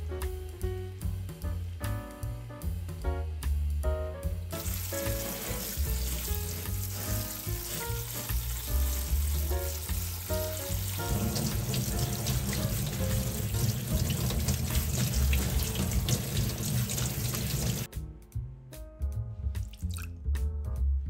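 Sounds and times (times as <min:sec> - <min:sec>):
tap water spraying into colander: 0:04.5 - 0:17.9
background music with strong bass: 0:17.9 - 0:21.0.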